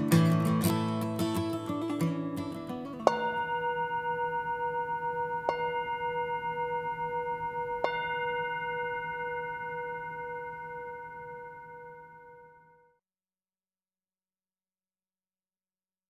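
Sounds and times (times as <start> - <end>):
bell ringing: 3.1 - 12.8.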